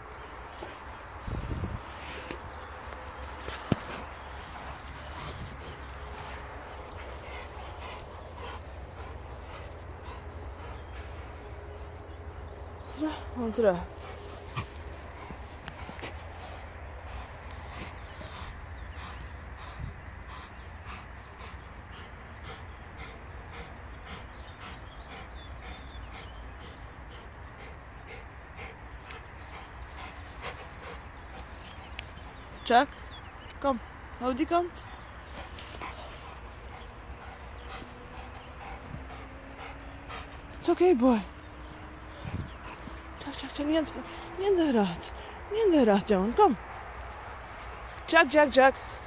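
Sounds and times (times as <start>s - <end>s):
soft rustles in grass: 0.0s - 10.6s, 46.6s - 48.1s
dog panting hard: 1.8s - 49.0s.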